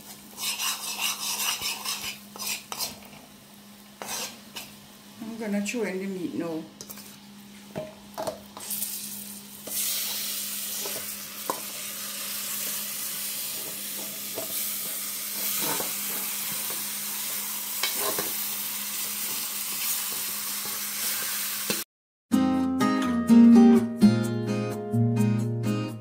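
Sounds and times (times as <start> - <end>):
meat sizzling in oil: 8.6 - 21.8.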